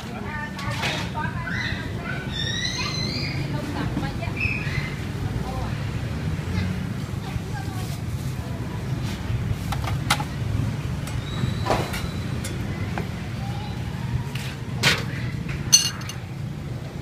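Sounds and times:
metal cookware clinking: 12.4s - 12.7s, 15.7s - 16.3s
sharp ringing metal clink: 15.7s - 16.2s.

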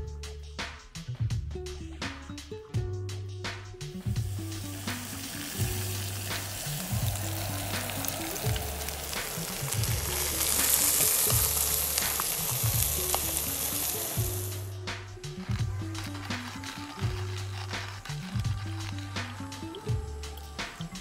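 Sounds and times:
background music with bass line: 0.0s - 21.0s
steak sizzling in a skillet: 4.2s - 14.7s, 15.4s - 20.0s.

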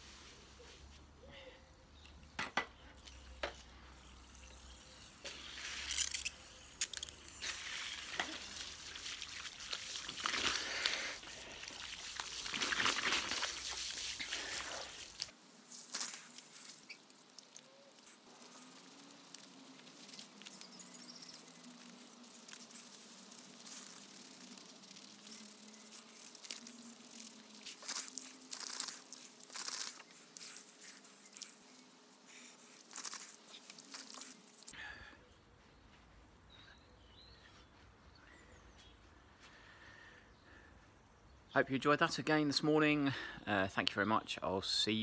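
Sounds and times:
hose water spraying on skin: 3.8s - 34.8s
hands scrubbing soap on skin: 7.4s - 34.7s.

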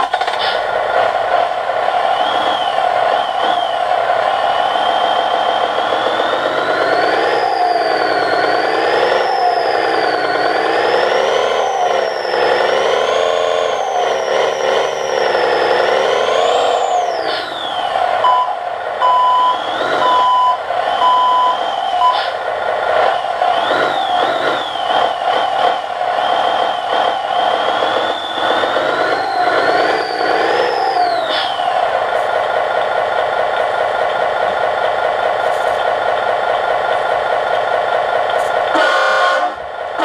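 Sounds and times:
truck engine through small speaker: 0.0s - 40.0s
reversing beeper: 2.0s - 31.9s, 38.7s - 39.6s.

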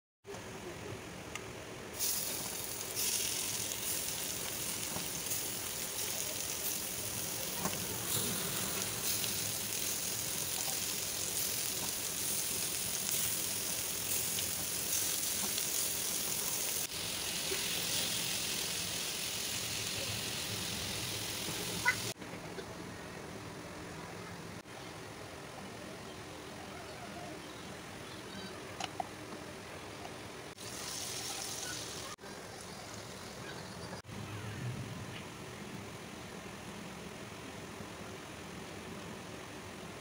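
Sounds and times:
chicken frying in a pan: 2.0s - 22.2s, 30.6s - 33.4s.

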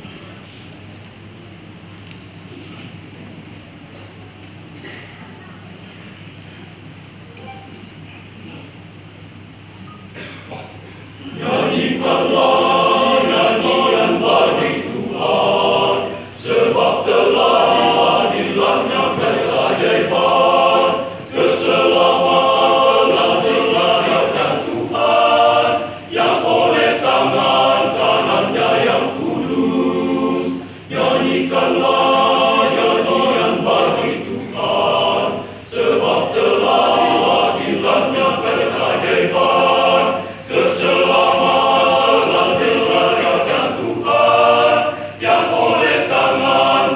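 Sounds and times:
men's choir singing a cappella: 11.2s - 46.9s.

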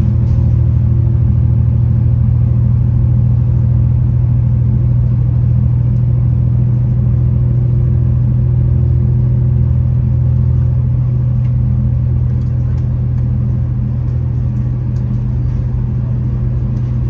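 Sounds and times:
train wheels on track: 0.0s - 1.2s, 9.2s - 17.0s
diesel engine droning: 0.0s - 17.0s.

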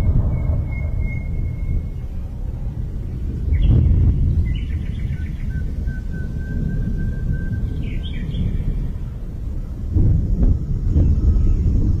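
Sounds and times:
thin steady whistle: 0.0s - 2.2s, 5.4s - 8.1s
low rumble: 0.0s - 12.0s.

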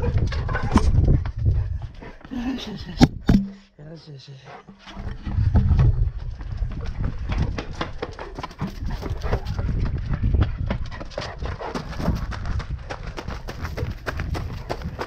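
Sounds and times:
low rumble of movement: 0.0s - 2.2s, 4.6s - 13.1s
dog running on concrete and gravel: 0.0s - 2.4s, 4.6s - 15.0s
person running steps: 4.6s - 15.0s.

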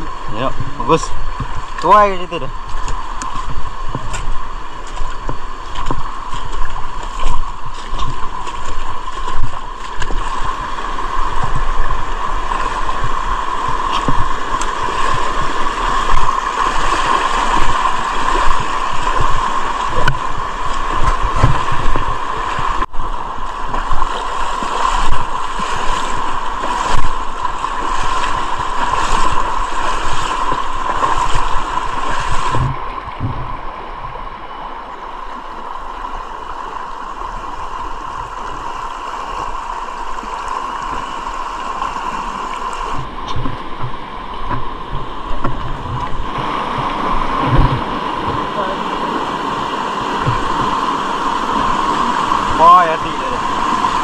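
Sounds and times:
river water rushing: 0.0s - 54.0s
low thumps: 32.5s - 34.2s, 43.0s - 48.5s, 50.2s - 50.8s.

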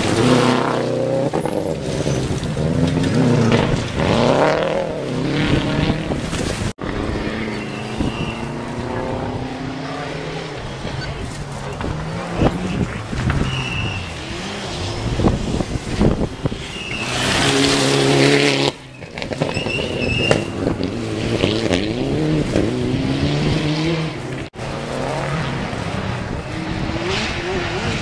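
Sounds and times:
rally car engine revving past: 0.0s - 28.0s.

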